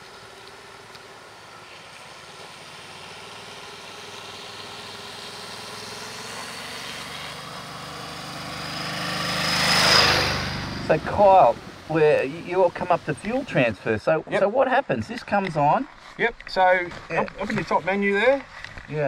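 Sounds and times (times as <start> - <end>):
motorcycle engine running: 0.0 - 13.5
water spraying: 9.1 - 13.7.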